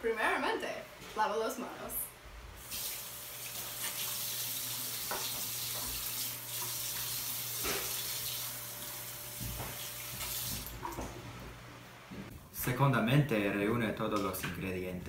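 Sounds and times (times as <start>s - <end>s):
faucet running: 2.6s - 11.1s.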